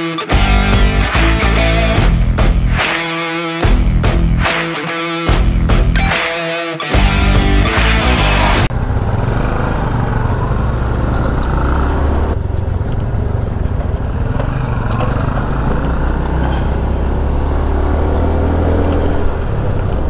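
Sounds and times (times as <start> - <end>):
motorcycle engine rumble: 8.4 - 17.6.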